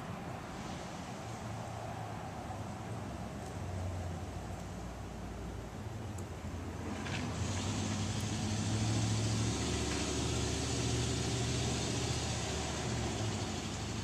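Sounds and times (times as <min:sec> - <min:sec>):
motor vehicle passing: 0:06.6 - 0:14.0.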